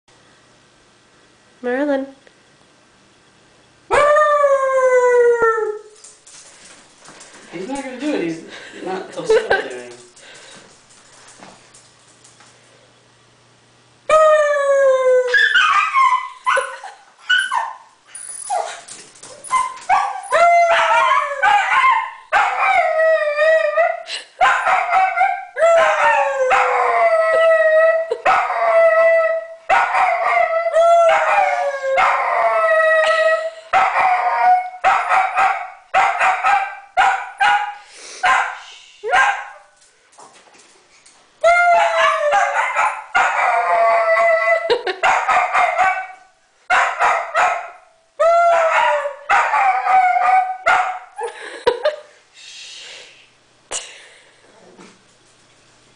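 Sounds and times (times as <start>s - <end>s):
dog yipping: 15.4s - 22.7s
dog howling: 24.7s - 33.2s, 41.4s - 44.7s, 48.2s - 50.9s.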